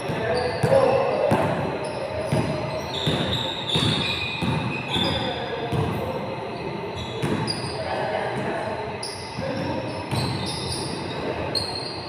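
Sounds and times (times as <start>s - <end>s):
sneakers squeaking on court: 0.0s - 7.8s, 8.9s - 12.0s
basketball bouncing: 2.2s - 5.1s, 5.7s - 6.0s.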